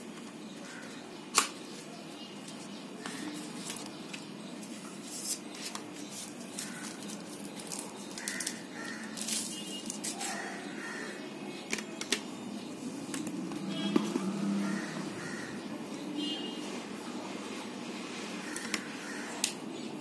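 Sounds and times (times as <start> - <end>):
paper and plastic rustling: 2.5 - 10.6.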